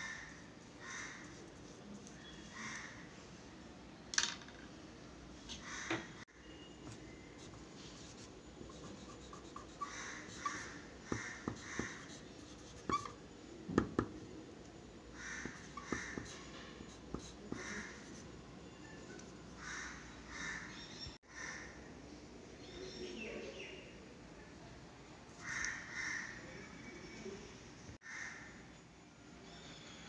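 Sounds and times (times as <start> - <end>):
pencil scratching on paper: 0.6 - 2.8, 7.4 - 13.2, 15.2 - 18.3.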